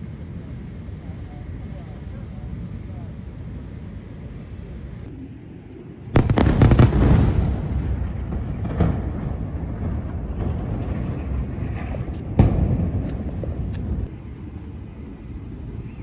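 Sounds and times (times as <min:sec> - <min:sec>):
low rumble: 0:03.4 - 0:15.8
heavy explosion blast: 0:06.2 - 0:14.1.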